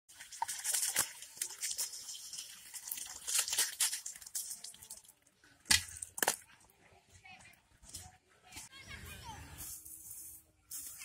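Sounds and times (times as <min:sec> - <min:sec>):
water gushing and splashing: 0:00.1 - 0:05.0.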